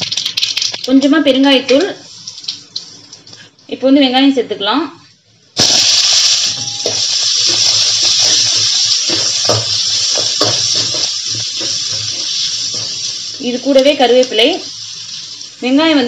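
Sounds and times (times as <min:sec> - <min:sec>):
onions sizzling in hot oil: 0:05.6 - 0:16.0.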